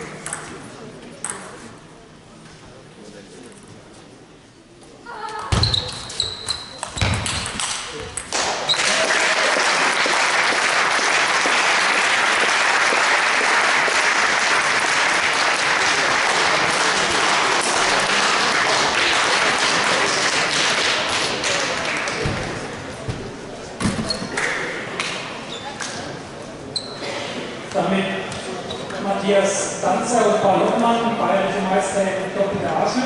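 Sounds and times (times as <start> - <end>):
audience applause: 8.4 - 22.2.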